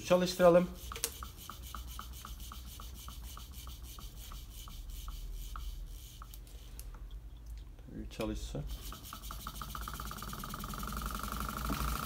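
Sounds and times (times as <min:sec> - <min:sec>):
steady rubbing: 0:00.3 - 0:06.8
engine crank mechanism ticking: 0:08.7 - 0:12.0.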